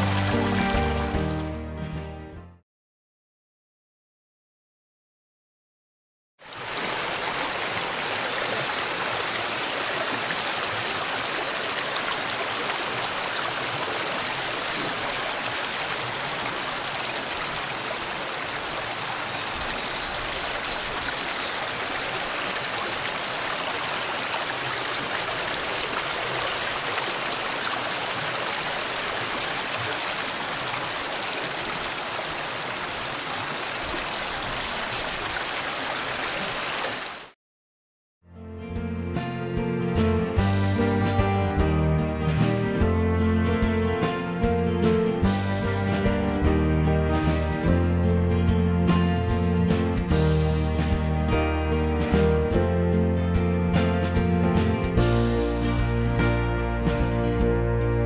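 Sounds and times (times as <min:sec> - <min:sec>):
stream flowing over rocks: 0:06.4 - 0:37.3.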